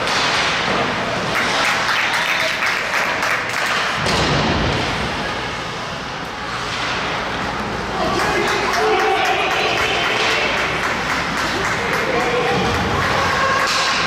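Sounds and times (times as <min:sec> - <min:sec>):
crowd cheering and clapping: 0:08.0 - 0:14.0.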